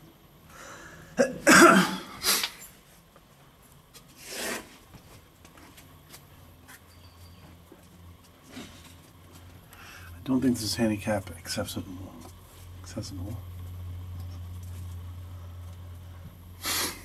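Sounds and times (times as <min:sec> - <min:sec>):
person coughing: 0:01.2 - 0:02.2.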